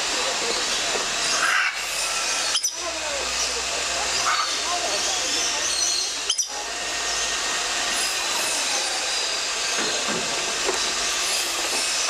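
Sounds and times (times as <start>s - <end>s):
hissing aviary din: 0.0s - 12.0s
faint bird calls: 0.6s - 7.4s.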